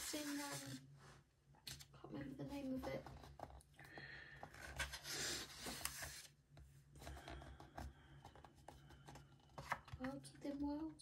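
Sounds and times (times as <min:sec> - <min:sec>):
paper pages turning: 0:00.0 - 0:00.8, 0:01.6 - 0:02.0, 0:04.4 - 0:06.4.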